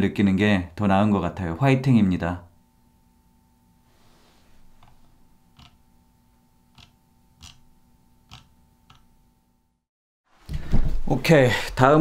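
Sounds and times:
faint electrical hum: 0.0 - 12.0.

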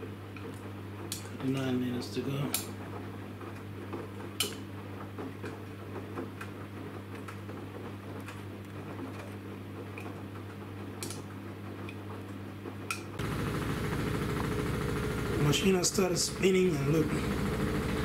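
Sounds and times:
washing machine drum humming: 0.0 - 18.0.

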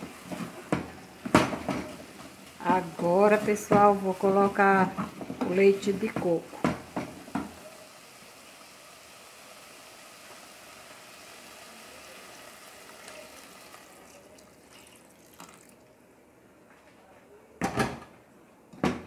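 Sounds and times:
liquid pouring into pot: 7.3 - 16.0.

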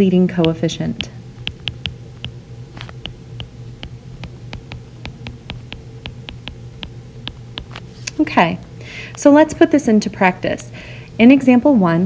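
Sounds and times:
low steady hum: 0.0 - 12.0
stylus tapping on glass screen: 0.4 - 7.8.

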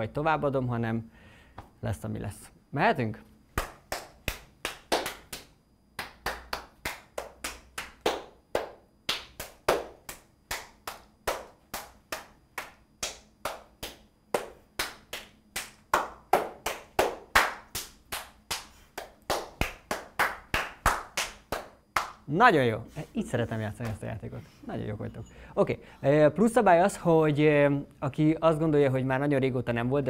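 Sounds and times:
hand claps: 3.5 - 22.3.

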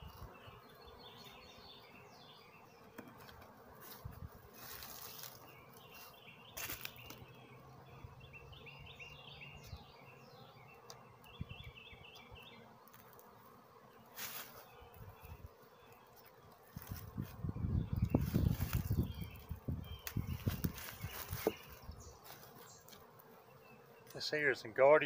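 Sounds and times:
songbird chirping: 0.0 - 13.2, 13.8 - 25.0
bees buzzing faintly: 0.0 - 25.0.

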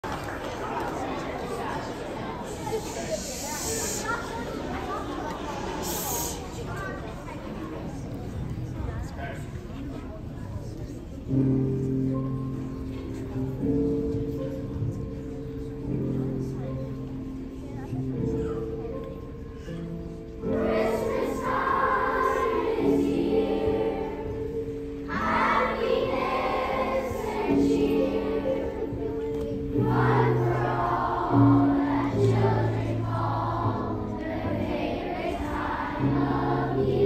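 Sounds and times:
children's choir singing: 0.0 - 7.1, 20.4 - 37.0
musical accompaniment: 20.0 - 37.0.

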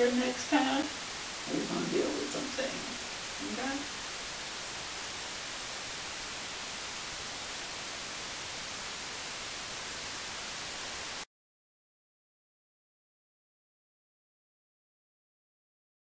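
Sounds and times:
faint high-pitched whine: 0.0 - 11.2
recording hiss: 0.0 - 11.3.

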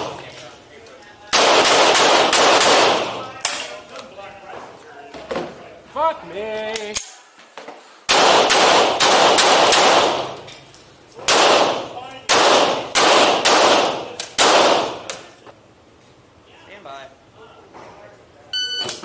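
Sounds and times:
handgun shots: 1.3 - 3.7, 8.1 - 10.4, 11.2 - 15.3
electronic timer beep: 18.6 - 19.0.

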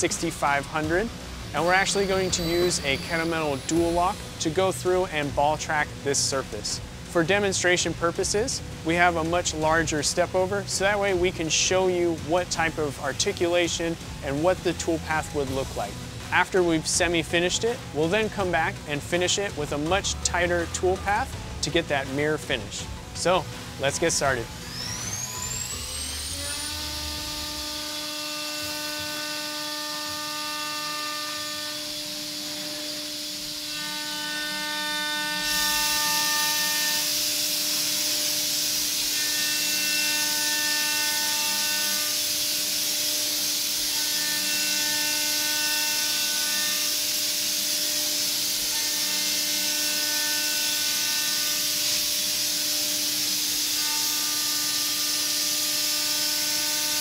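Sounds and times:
cutting tool whine: 0.0 - 57.0
machine spindle humming: 0.0 - 57.0.

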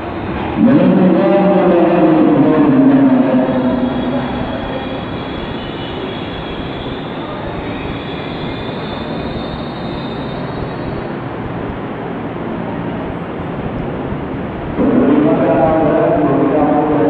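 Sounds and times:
electric train rumbling: 0.0 - 17.0
faint high wheel squeal: 3.7 - 11.4.

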